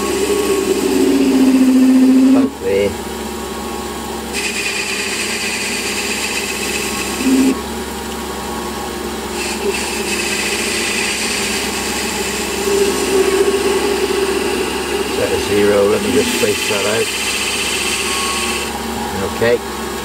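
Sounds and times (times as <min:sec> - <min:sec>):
metal lathe humming: 0:00.0 - 0:20.0
hiss of cutting tool: 0:04.4 - 0:07.6, 0:09.4 - 0:18.7.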